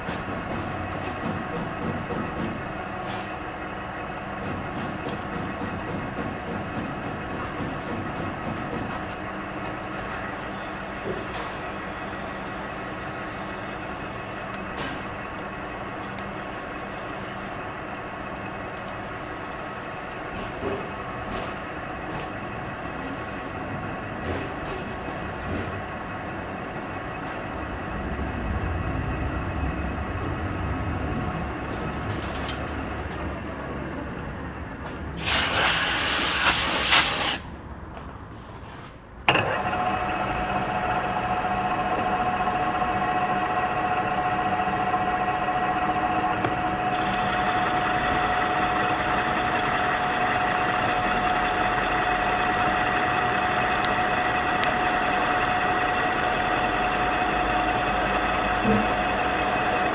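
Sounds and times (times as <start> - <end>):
metal lathe running: 8.2 - 27.9, 39.3 - 59.9
hand file strokes on metal: 10.3 - 14.6, 15.9 - 17.6, 22.5 - 23.6
loud hissing rasp: 35.2 - 37.5.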